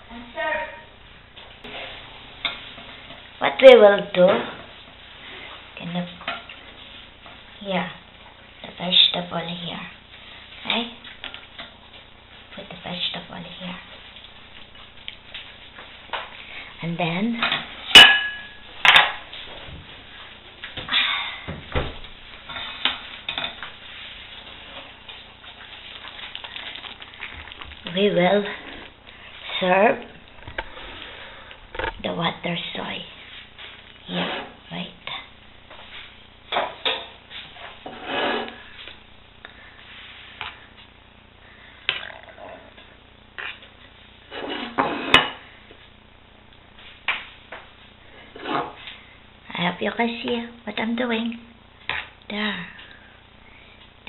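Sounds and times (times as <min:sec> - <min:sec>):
metal spoon scraping a pan: 0:37.8 - 0:38.6, 0:44.3 - 0:45.4.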